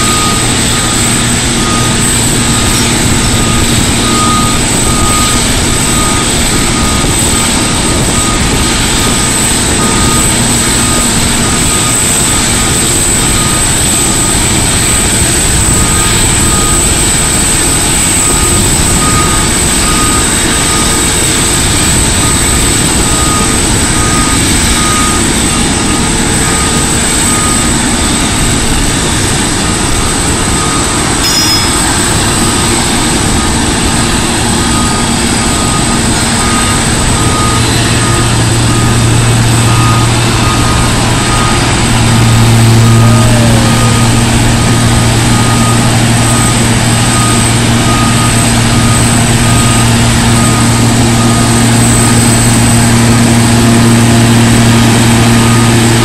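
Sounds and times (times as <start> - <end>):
short warning beeps: 0.0 - 12.6, 30.0 - 53.0
broad rumble: 0.0 - 56.0
heavy diesel engine: 0.0 - 56.0
high jet whine: 0.0 - 56.0.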